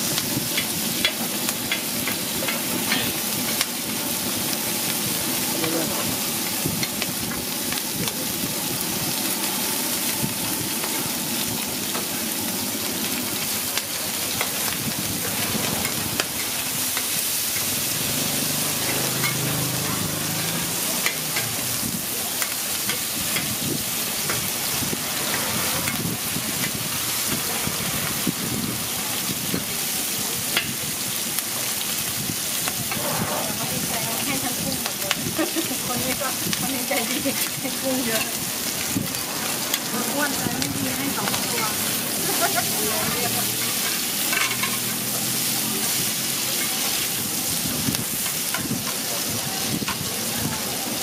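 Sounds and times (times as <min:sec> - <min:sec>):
shrimp sizzling in hot oil: 0:00.0 - 0:51.0
metal spatula scraping a pan: 0:41.2 - 0:45.1.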